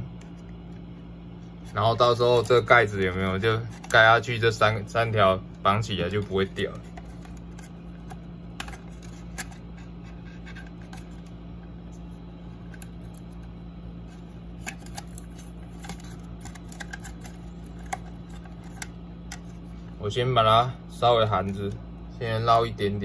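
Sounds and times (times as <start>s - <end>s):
steady low hum: 0.0s - 23.0s
plastic clicks and scrapes: 14.6s - 19.6s.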